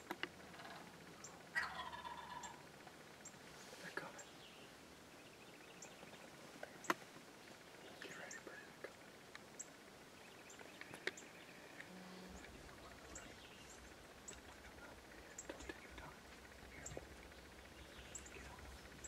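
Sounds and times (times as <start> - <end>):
faint low hum: 0.0 - 19.0
faint clicks: 10.5 - 17.4.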